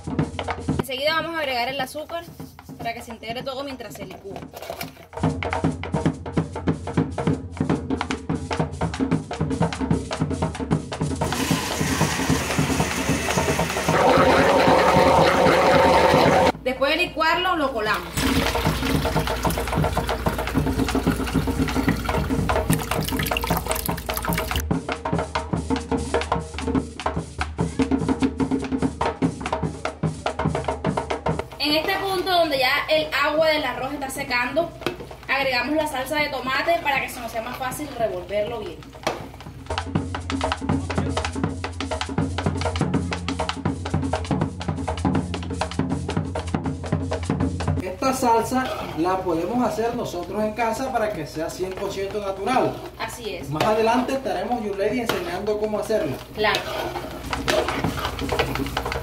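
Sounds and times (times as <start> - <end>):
drum and percussion beat: 0.0 - 59.0
juice splashing and trickling: 18.0 - 24.6.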